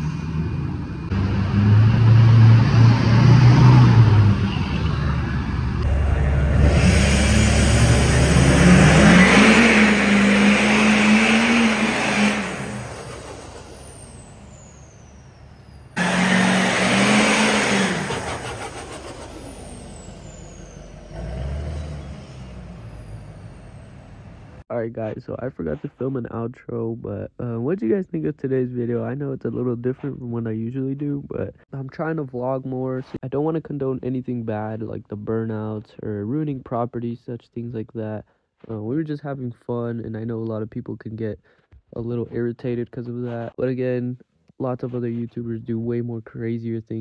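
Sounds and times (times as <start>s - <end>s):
trucks revving and accelerating: 0.0s - 24.6s.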